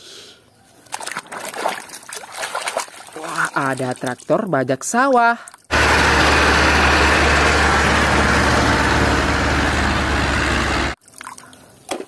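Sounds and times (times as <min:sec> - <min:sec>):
tractor diesel engine running: 0:05.7 - 0:11.0.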